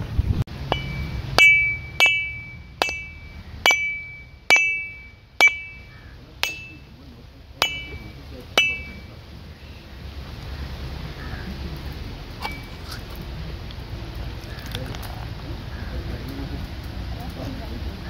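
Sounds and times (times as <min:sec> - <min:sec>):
metal blade knocking coconut shell: 0:00.6 - 0:06.9, 0:07.6 - 0:09.1.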